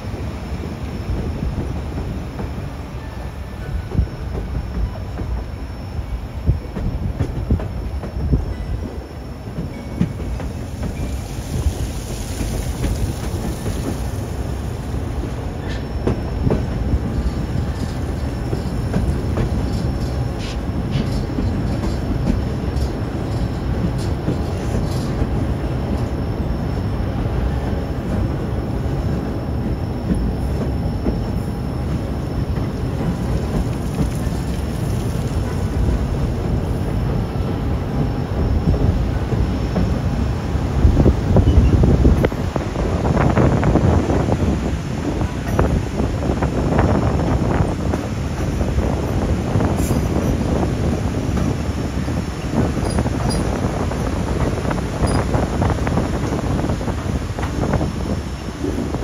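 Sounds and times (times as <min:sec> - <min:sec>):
rail joint clicks: 0:00.0 - 0:59.0
train wheels rumbling on rail: 0:00.0 - 0:59.0
faint high wheel squeal: 0:07.8 - 0:12.5, 0:41.4 - 0:42.0, 0:52.0 - 0:55.4.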